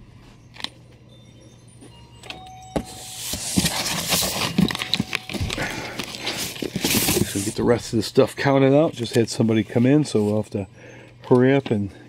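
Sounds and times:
paper and cardboard rustling: 2.8 - 8.0.

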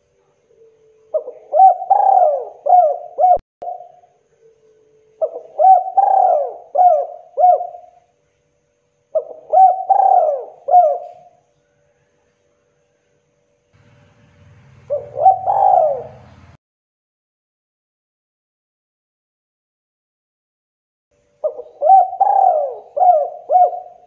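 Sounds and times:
dove cooing: 0.5 - 4.1, 5.2 - 8.0, 9.1 - 11.4, 14.4 - 16.6, 21.4 - 24.0.

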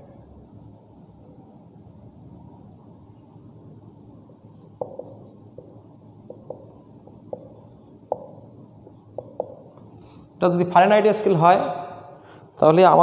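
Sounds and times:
low room hum: 0.0 - 13.0
marker tapping on whiteboard: 4.3 - 9.9.

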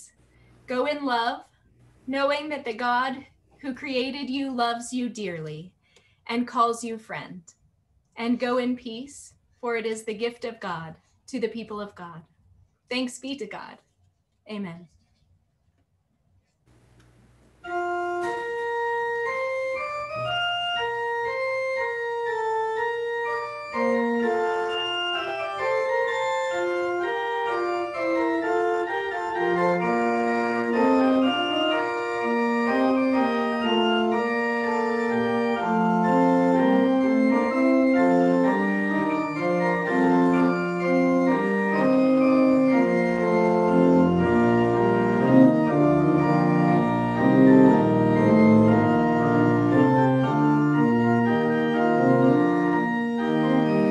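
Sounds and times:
church pipe organ playing: 17.6 - 53.9.

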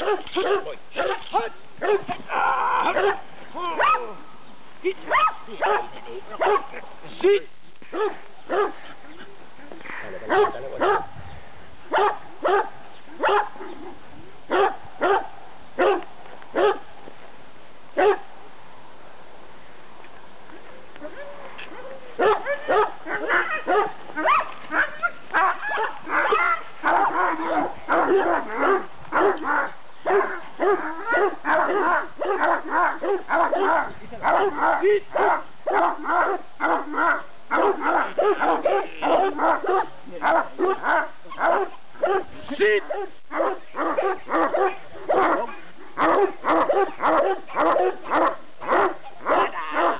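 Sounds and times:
dog barking rapidly: 0.0 - 2.2, 3.8 - 4.1, 5.1 - 6.7, 7.9 - 8.8, 10.3 - 11.1, 11.9 - 13.6, 14.5 - 16.0, 18.0 - 18.2, 22.2 - 49.9.

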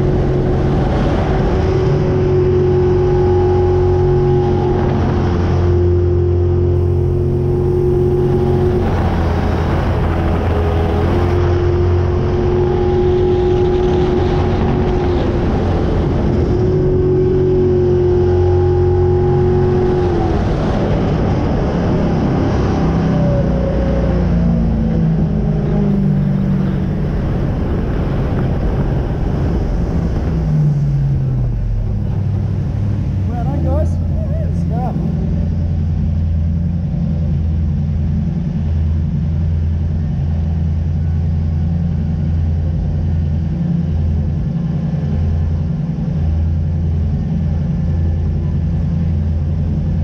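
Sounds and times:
wind noise: 0.0 - 36.1
boat engine running hard: 0.0 - 50.0
rushing water: 5.0 - 12.0, 25.9 - 35.2.

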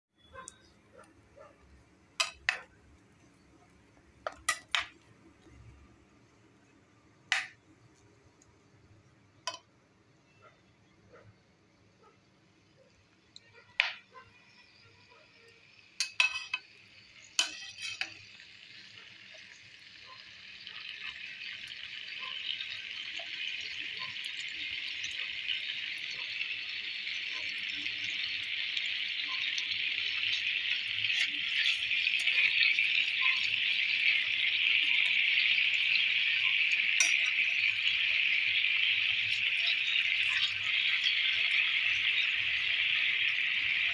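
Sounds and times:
syrup sizzling and bubbling: 0.2 - 43.9
steel ladle clinking on pan: 16.0 - 16.6, 37.0 - 37.4.

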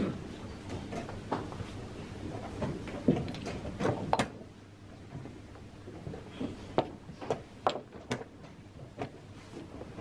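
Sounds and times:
faint room noise: 0.0 - 10.0.

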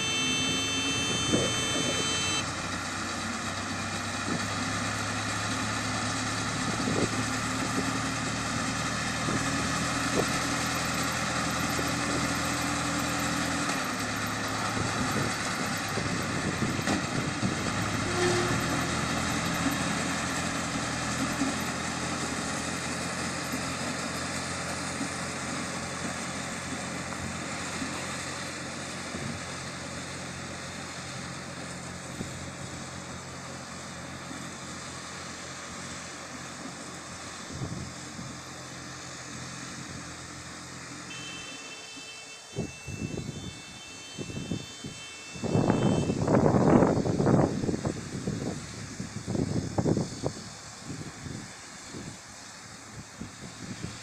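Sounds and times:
hay baler working: 0.0 - 41.7
tractor engine running: 0.0 - 54.0.

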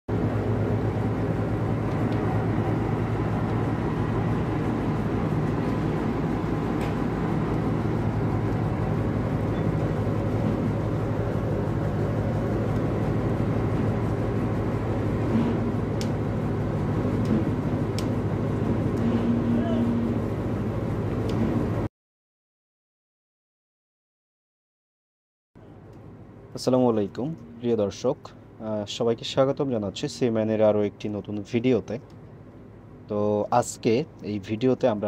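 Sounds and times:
boat engine droning: 0.1 - 21.9.

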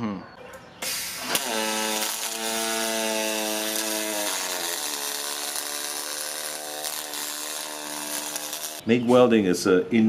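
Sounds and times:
welding arc buzzing: 0.8 - 8.8.

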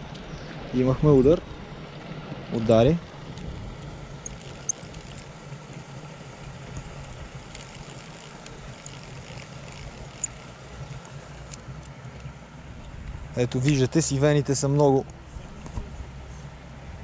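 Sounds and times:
steady low hum: 0.0 - 17.0
small fishing reel cranking clicks: 4.2 - 5.3, 7.5 - 10.5.

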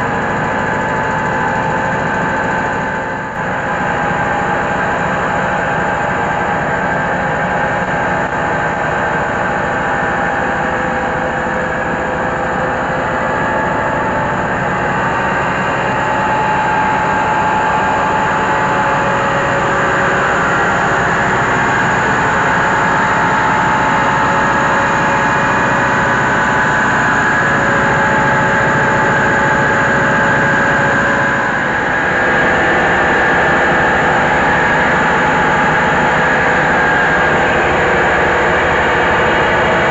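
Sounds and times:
rice huller machine din: 0.0 - 39.9.

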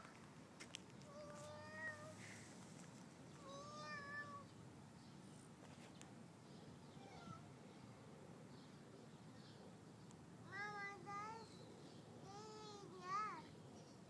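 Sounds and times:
cat meowing: 7.0 - 7.5.

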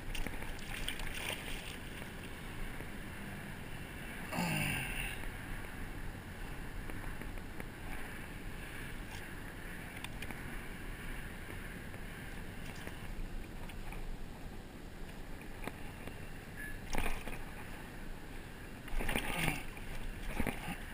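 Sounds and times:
shallow water sloshing: 0.0 - 2.4.

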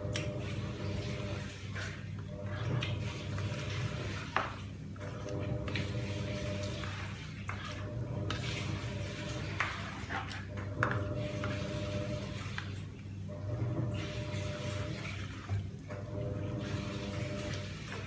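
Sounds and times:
utensil scraping in pot: 0.4 - 12.8.

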